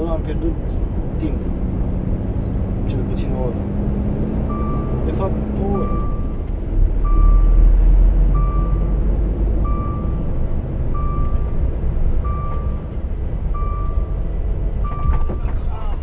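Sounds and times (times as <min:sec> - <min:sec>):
truck engine rumble: 0:00.0 - 0:16.0
reversing alarm beeping: 0:04.5 - 0:06.4, 0:07.0 - 0:07.6, 0:08.3 - 0:08.9, 0:09.6 - 0:10.3, 0:10.9 - 0:11.6, 0:12.2 - 0:12.9, 0:13.5 - 0:14.2, 0:14.8 - 0:15.8.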